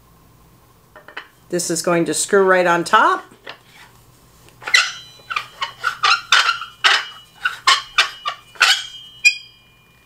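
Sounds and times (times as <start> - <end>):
squeaks and scrapes of metal threads: 4.6 - 9.6
metal shade ringing: 4.6 - 10.0.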